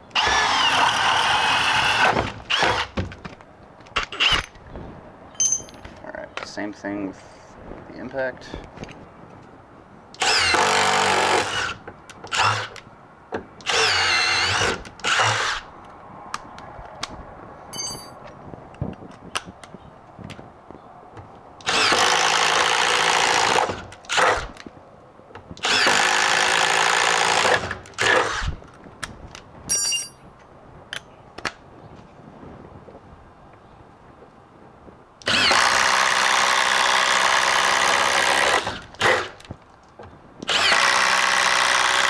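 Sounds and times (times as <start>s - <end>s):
impact driver drilling wood: 0.2s - 3.1s, 10.2s - 12.7s, 13.6s - 15.6s, 21.6s - 24.5s, 25.6s - 28.5s, 35.2s - 39.4s, 40.4s - 42.0s.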